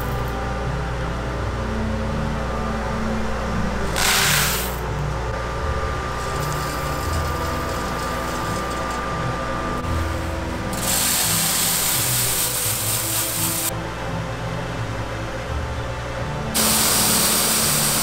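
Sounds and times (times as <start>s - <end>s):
machine hum: 0.0s - 18.0s
coffee beans pouring and rattling: 4.0s - 4.8s, 6.2s - 9.0s, 10.7s - 13.7s, 16.6s - 18.0s.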